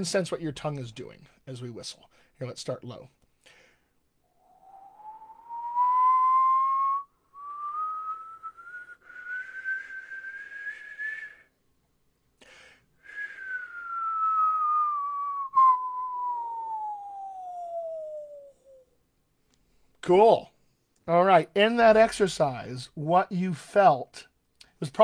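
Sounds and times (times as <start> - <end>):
quick breath: 3.4 - 4.0, 12.4 - 13.5
man whistling pitch glide: 4.3 - 11.5, 13.1 - 19.0.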